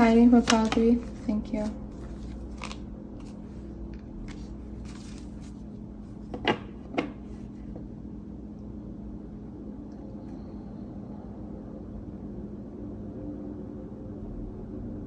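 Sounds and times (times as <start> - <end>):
steady low hum: 0.0 - 15.0
cards rustling: 0.3 - 5.7.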